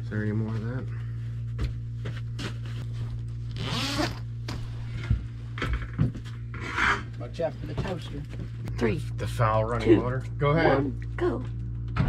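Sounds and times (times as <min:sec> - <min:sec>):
steady low hum: 0:00.0 - 0:12.0
zipper rasping: 0:03.5 - 0:04.3.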